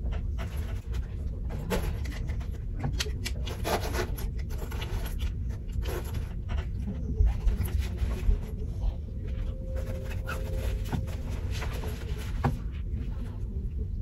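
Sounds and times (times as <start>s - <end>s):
low steady rumble: 0.0s - 14.0s.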